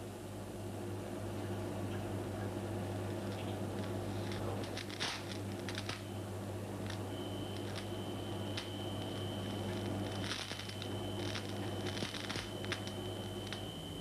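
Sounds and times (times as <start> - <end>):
steady low hum: 0.0 - 14.0
burning metal crackling and sputtering: 2.8 - 14.0.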